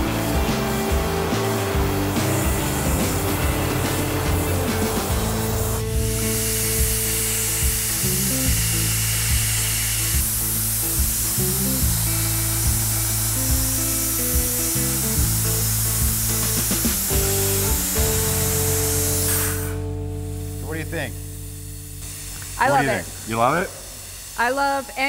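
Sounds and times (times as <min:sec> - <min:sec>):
background music with beat: 0:00.0 - 0:20.5
dry ice blaster hissing: 0:00.0 - 0:25.0.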